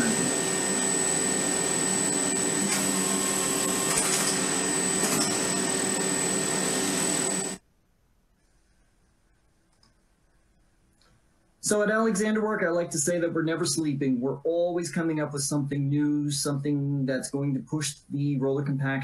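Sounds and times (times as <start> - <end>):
machine hum and whine: 0.0 - 7.6.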